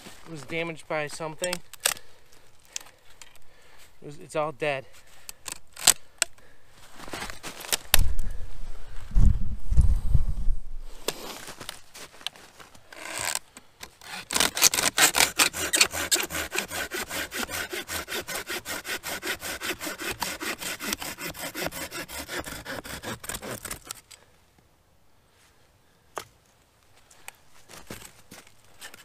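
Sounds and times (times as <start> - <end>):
hand saw cutting branch: 13.0 - 24.1.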